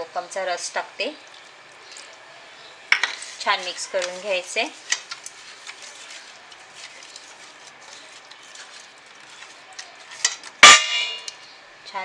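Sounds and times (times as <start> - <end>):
fish mixed by hand in steel bowl: 0.0 - 11.4
sharp metallic clang: 10.6 - 11.3.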